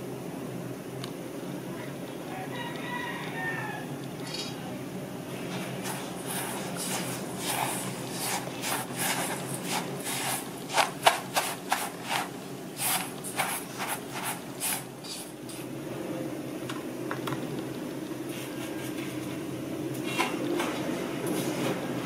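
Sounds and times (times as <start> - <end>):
spatula scraping metal bowl: 5.8 - 15.3.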